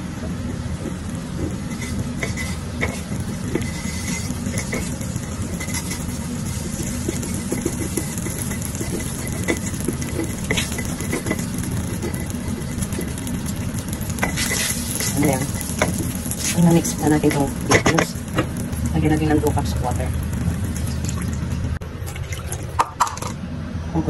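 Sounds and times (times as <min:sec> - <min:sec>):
butter sizzling faintly: 0:00.0 - 0:21.8
steady low hum: 0:00.0 - 0:24.0
silicone spatula mashing in pan: 0:00.2 - 0:21.1
spatula scraping clicks: 0:00.5 - 0:16.6.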